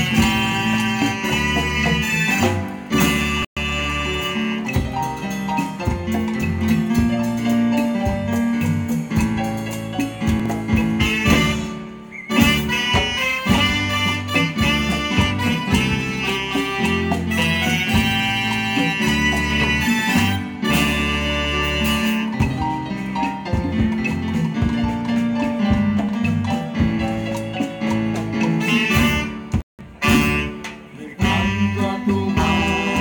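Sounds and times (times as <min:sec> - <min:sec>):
saxophone melody: 0:00.0 - 0:05.4, 0:11.0 - 0:22.8, 0:28.2 - 0:33.0
live band playing dance tune: 0:00.0 - 0:33.0.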